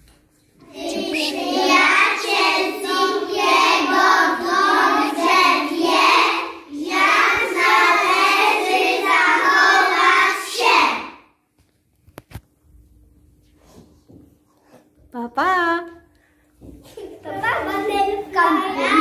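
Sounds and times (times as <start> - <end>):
children singing in unison: 0.7 - 11.1.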